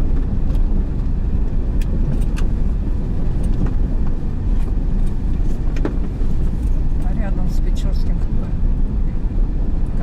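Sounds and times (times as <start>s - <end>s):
stones clicking under tyres: 0.0s - 7.1s
car engine and tyres rumbling: 0.0s - 10.0s.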